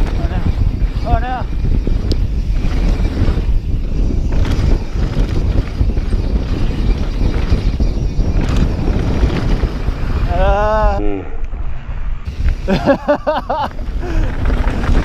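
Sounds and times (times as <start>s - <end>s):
wind buffeting microphone: 0.0s - 15.0s
bike clattering over trail: 1.9s - 10.0s, 12.8s - 15.0s.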